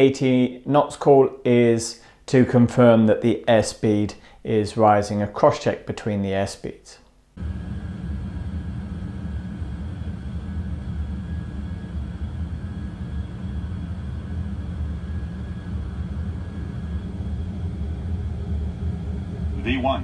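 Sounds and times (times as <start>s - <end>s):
faint steady whine: 0.0s - 20.0s
jet engines rumbling: 7.4s - 20.0s.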